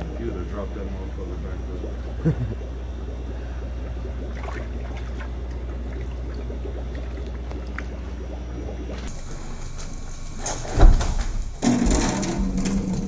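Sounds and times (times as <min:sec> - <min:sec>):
faint water splashes: 0:00.0 - 0:09.1
aquarium water bubbling: 0:00.0 - 0:09.3
low hum: 0:00.0 - 0:13.0.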